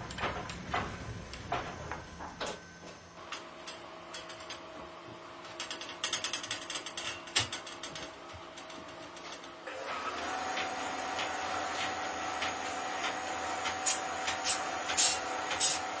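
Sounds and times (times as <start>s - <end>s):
grinding wheel whine: 7.9s - 16.0s.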